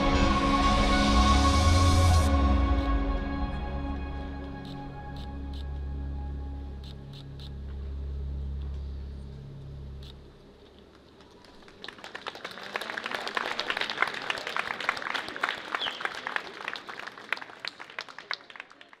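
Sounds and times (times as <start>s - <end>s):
crowd applauding: 11.0s - 19.0s.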